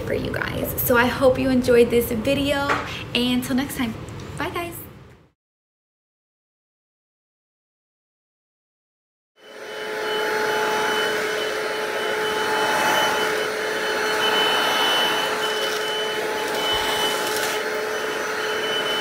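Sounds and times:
cordless vacuum running: 9.4s - 19.0s.

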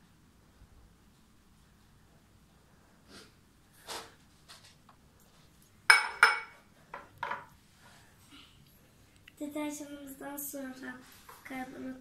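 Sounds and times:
drinking glass clinking: 5.9s - 6.5s.

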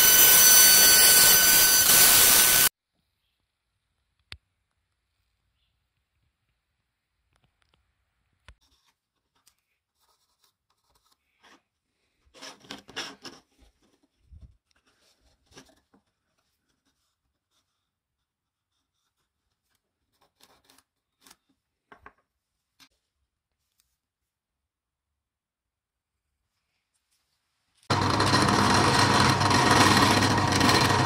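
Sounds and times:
pencil scratching on wood: 10.0s - 11.6s, 16.7s - 21.5s
plywood scraping and sliding: 27.9s - 31.0s.

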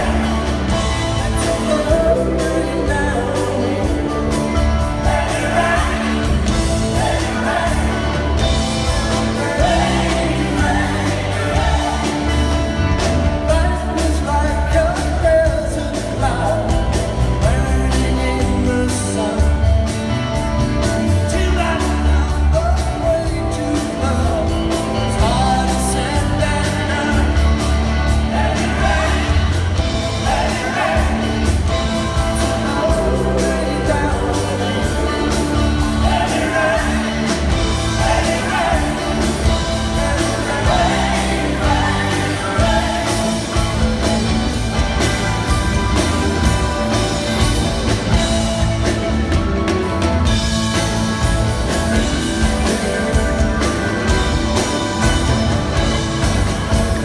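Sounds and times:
man singing lead: 0.0s - 20.0s, 20.8s - 44.6s
electric guitar: 0.0s - 57.0s
live rock band: 0.0s - 57.0s.

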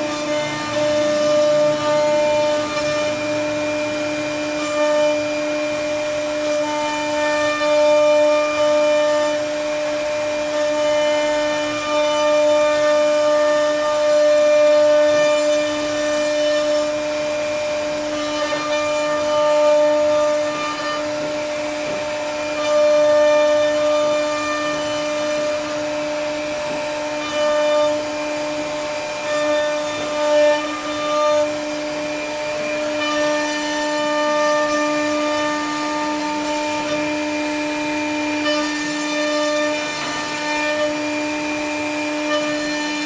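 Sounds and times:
router bit carving wood: 0.0s - 43.0s
router spindle whine: 0.0s - 43.0s.

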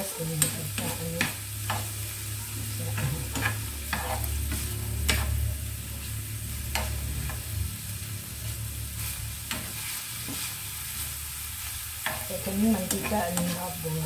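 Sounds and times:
metal spatula scraping pan: 0.0s - 7.4s
meat sizzling in a frying pan: 0.0s - 14.0s.

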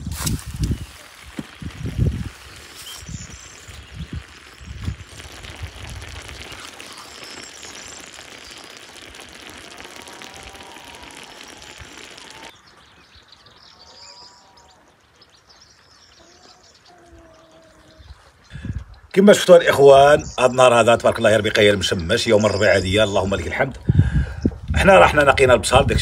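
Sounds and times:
steady hiss: 0.0s - 12.5s
birds chirping: 1.5s - 25.8s.

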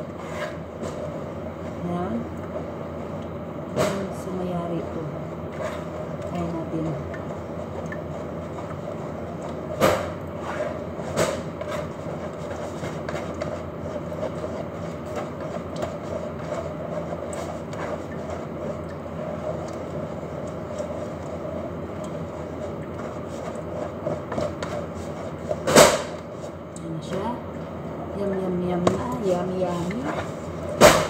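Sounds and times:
whisk knocking bowl: 5.5s - 27.3s, 28.8s - 31.0s
wire whisk beating batter: 5.5s - 27.3s.

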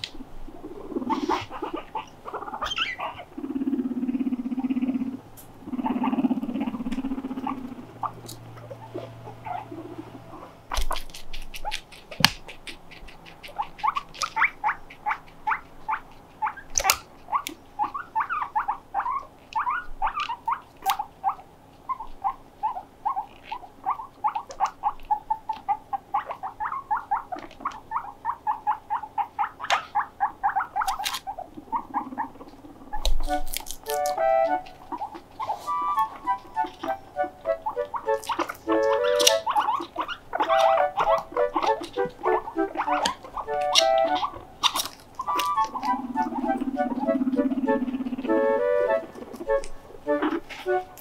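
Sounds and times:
guinea pigs squeaking: 0.0s - 51.0s.

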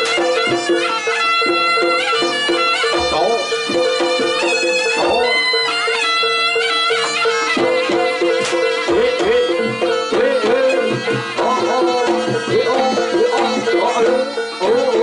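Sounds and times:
hand drum strokes: 0.0s - 5.7s.

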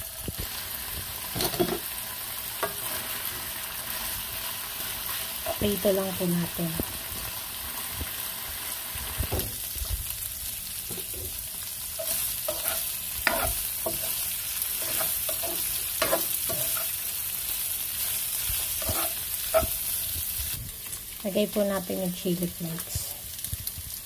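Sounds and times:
meat sizzling in oil: 0.0s - 24.0s
spatula scraping a pan: 2.6s - 4.1s, 10.9s - 17.1s, 17.9s - 20.1s.

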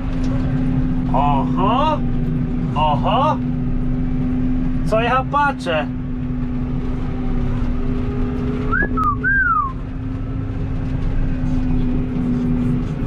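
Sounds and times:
tractor engine drone inside cab: 0.0s - 13.0s
person whistling: 8.7s - 9.8s.

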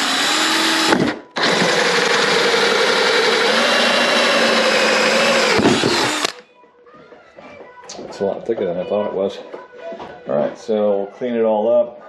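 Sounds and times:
hole saw cutting plastic: 0.0s - 6.4s
power drill whine: 0.0s - 6.4s.

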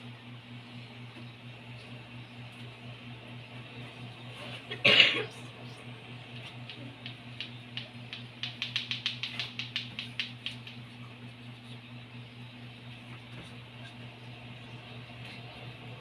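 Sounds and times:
steady low hum: 0.0s - 16.0s
person coughing: 4.7s - 5.4s.

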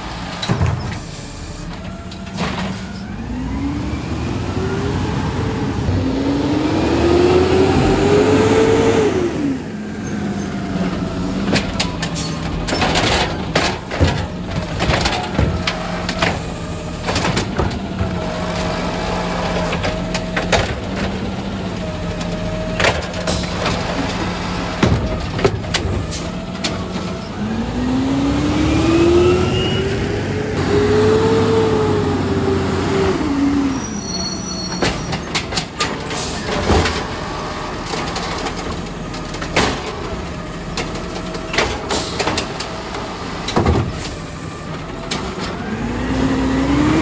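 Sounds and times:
clanks and knocks of carts: 0.0s - 3.1s, 10.0s - 27.4s, 33.7s - 47.0s
diesel engine idling and revving: 0.0s - 47.0s.

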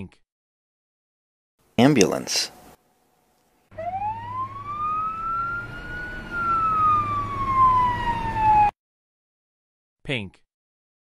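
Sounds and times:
ambulance siren wailing: 3.7s - 8.8s.

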